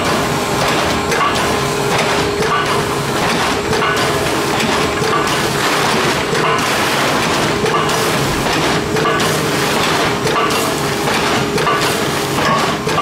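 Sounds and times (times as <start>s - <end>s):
bagging machine clattering: 0.0s - 13.0s.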